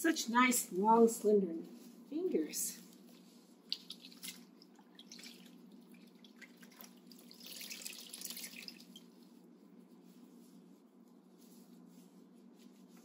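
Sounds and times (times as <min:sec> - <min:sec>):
water dripping: 0:03.6 - 0:09.1
water trickling: 0:03.6 - 0:09.1.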